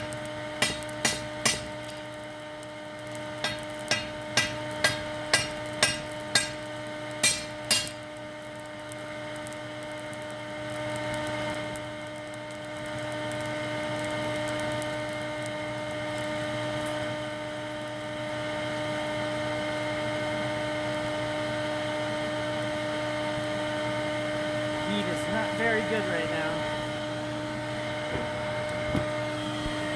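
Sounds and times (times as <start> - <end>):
electric air blower humming: 0.0 - 8.1, 15.0 - 29.9
hammer striking steel on anvil: 0.6 - 1.8, 3.4 - 8.0.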